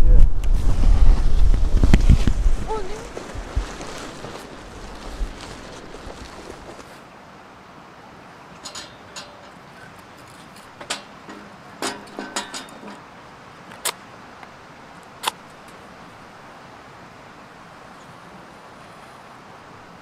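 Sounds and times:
creek rushing: 0.2s - 20.0s
sticks knocking on metal grate: 10.8s - 13.0s.

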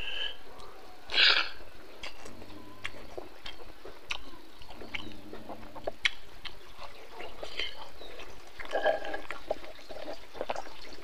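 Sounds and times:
man chewing food: 0.0s - 11.0s.

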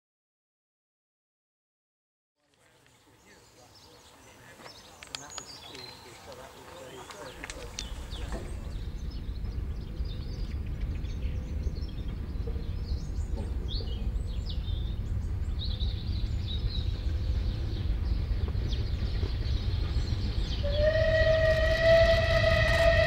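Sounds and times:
birds chirping and singing: 2.6s - 23.0s
steady low rumble: 7.4s - 20.7s.

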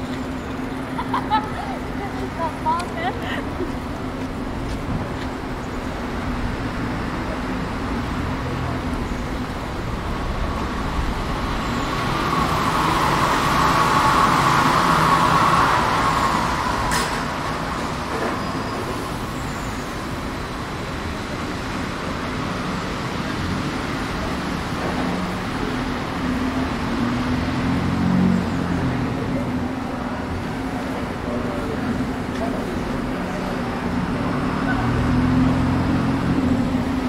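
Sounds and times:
city street traffic: 0.0s - 37.0s
vehicle passing close by: 34.2s - 37.0s.

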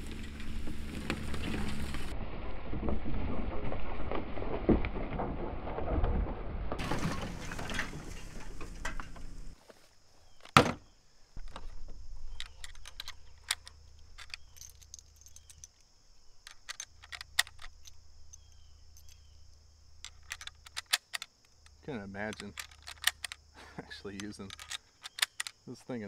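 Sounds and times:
rifle bolt clicking and clacking: 12.3s - 15.8s, 16.4s - 19.3s, 20.0s - 25.6s.

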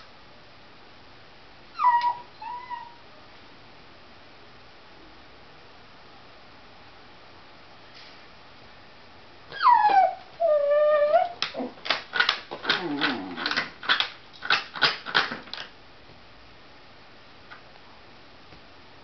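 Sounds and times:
dog whining: 1.7s - 3.1s, 9.5s - 11.8s, 12.6s - 13.6s
dog whimpering yips: 1.8s - 3.0s, 9.5s - 11.8s.

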